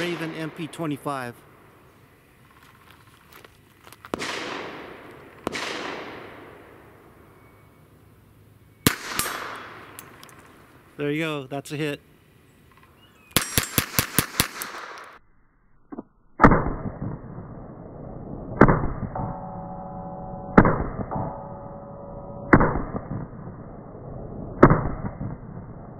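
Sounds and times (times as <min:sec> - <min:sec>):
sharp pistol shot cracks: 0:00.0 - 0:01.9, 0:04.1 - 0:07.2, 0:08.8 - 0:10.7, 0:13.3 - 0:15.2
ringing tone: 0:19.0 - 0:23.1.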